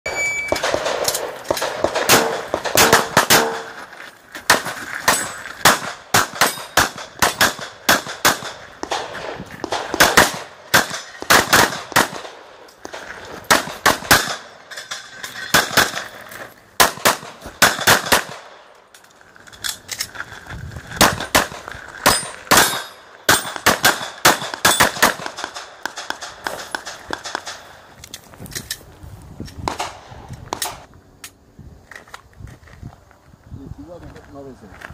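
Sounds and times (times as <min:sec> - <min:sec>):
handgun shots: 0:00.5 - 0:03.8.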